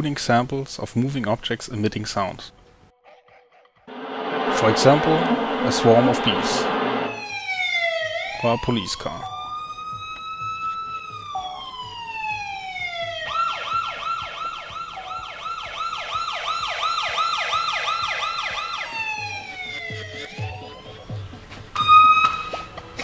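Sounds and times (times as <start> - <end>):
police siren wail and yelp: 7.1 - 21.2, 21.8 - 22.7.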